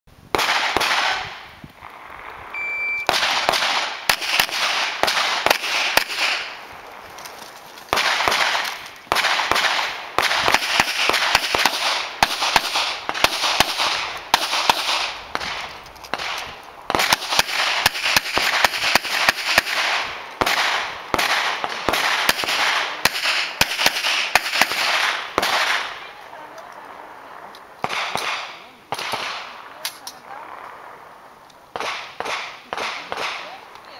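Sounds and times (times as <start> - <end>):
rapid pistol shots echoing: 0.3 - 1.5, 3.1 - 6.7, 7.9 - 26.1, 27.8 - 31.0, 31.7 - 33.6
shot timer beep: 2.6 - 3.1.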